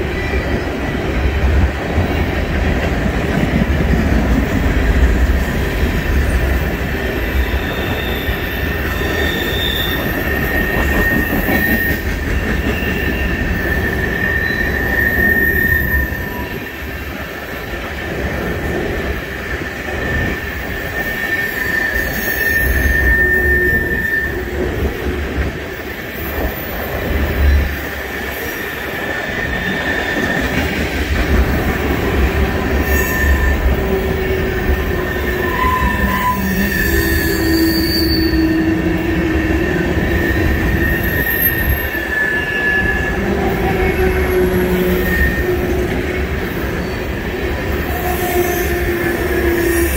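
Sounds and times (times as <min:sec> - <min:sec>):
freight train wheels rumbling: 0:00.0 - 0:49.9
high wheel squeal: 0:05.6 - 0:17.0, 0:20.0 - 0:24.6, 0:26.1 - 0:30.7, 0:32.3 - 0:49.9.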